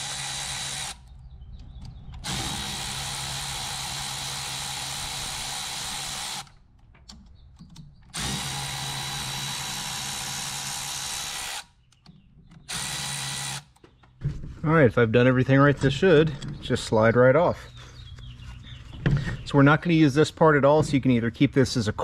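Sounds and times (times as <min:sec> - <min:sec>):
power drill spinning: 0:00.0 - 0:01.1, 0:02.2 - 0:06.6, 0:08.1 - 0:11.7, 0:12.7 - 0:13.8.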